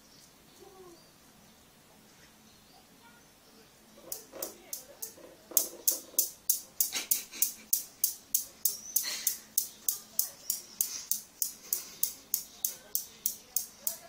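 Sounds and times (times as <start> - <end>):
steel balls clacking: 4.0 - 14.0.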